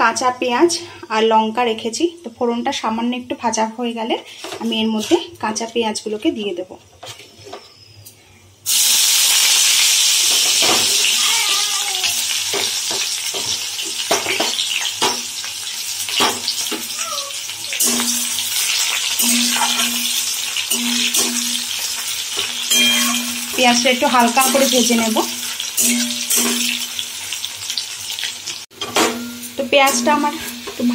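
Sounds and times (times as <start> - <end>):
onions frying sizzle: 8.6 - 30.9
metal spatula scraping pan: 17.7 - 27.0.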